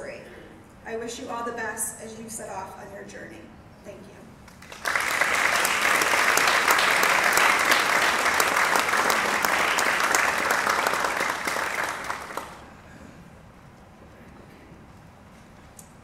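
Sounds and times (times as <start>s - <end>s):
audience applauding: 4.5s - 12.7s.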